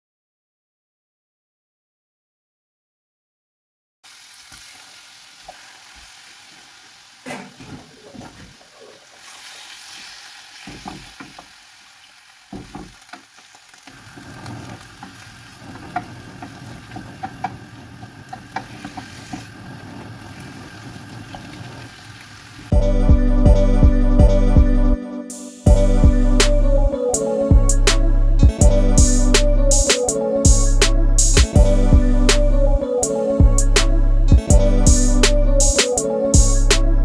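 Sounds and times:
pork sizzling in a frying pan: 4.0 - 22.7
wooden spatula scraping a pan: 13.9 - 21.9.

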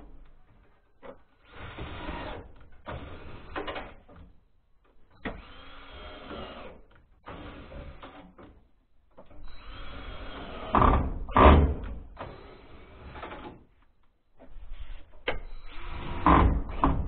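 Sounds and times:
cordless drill whirring: 5.2 - 8.2, 9.4 - 11.0.

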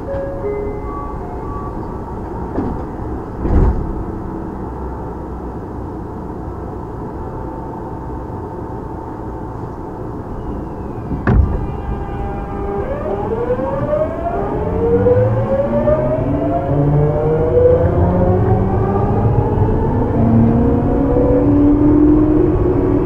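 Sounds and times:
train wheels rumbling on rail: 0.0 - 23.0
heavy thumps: 11.1 - 11.8.

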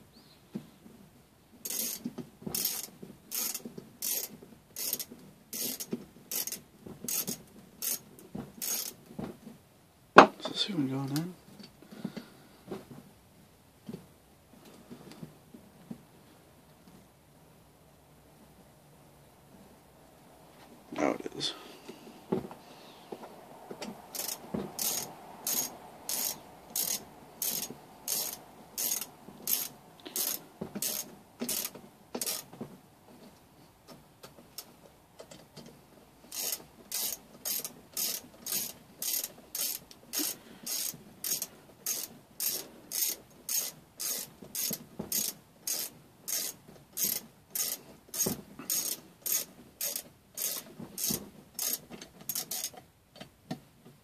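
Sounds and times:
ratchet tool clicking: 1.7 - 2.0, 2.6 - 8.0, 8.6 - 9.0, 24.1 - 32.5, 36.3 - 52.8.

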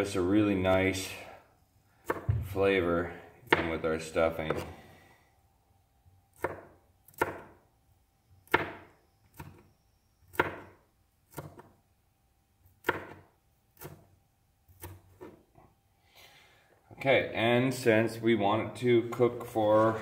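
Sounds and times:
knife chopping on cutting board: 2.0 - 2.5, 3.5 - 3.8, 4.4 - 4.7, 6.4 - 7.6, 8.5 - 9.6, 10.3 - 10.7, 11.3 - 11.7, 12.8 - 14.1, 14.7 - 15.4.

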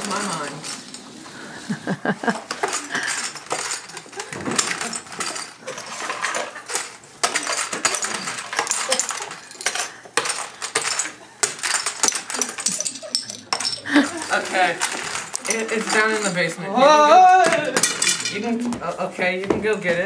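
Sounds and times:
spoon and chopsticks clinking bowls: 2.4 - 16.4, 17.7 - 18.5.

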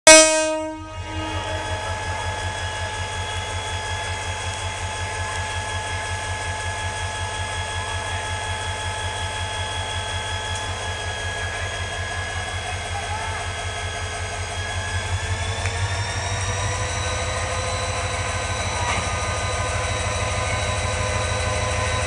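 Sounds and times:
loud train horn blast: 0.1 - 2.4
locomotive engine idling: 0.8 - 22.0.

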